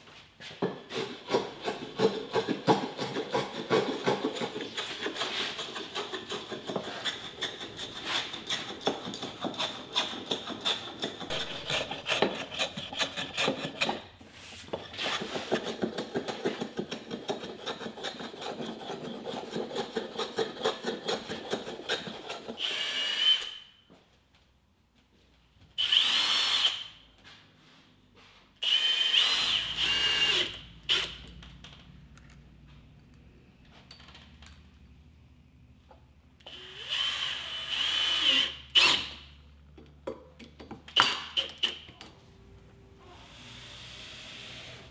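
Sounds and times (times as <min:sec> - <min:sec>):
hand tool scraping wood: 0:00.4 - 0:22.7
small power tool motor: 0:22.6 - 0:23.6, 0:25.8 - 0:26.9, 0:28.6 - 0:31.2, 0:36.5 - 0:39.2, 0:43.2 - 0:44.9.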